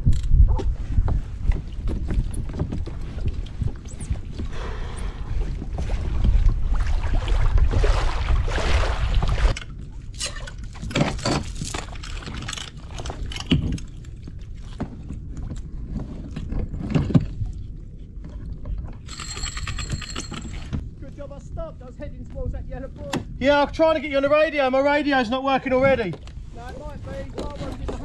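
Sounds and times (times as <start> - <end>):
wind buffeting microphone: 0.0 - 28.0
fishing gear clicking and knocking: 9.5 - 14.1, 18.7 - 20.9.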